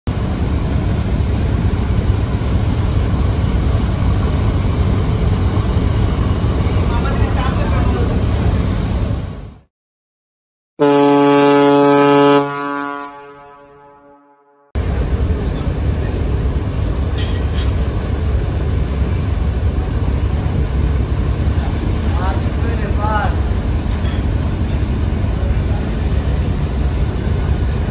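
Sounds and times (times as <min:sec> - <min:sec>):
wind: 0:00.1 - 0:09.7, 0:10.8 - 0:13.7, 0:14.8 - 0:27.9
diesel engines droning: 0:14.8 - 0:27.9.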